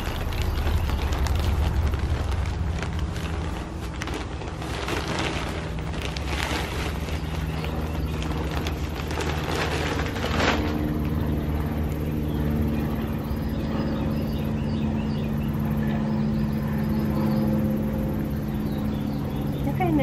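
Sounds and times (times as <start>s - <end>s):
soil pouring from a bag: 0.0s - 11.2s
low mechanical hum: 0.0s - 20.0s.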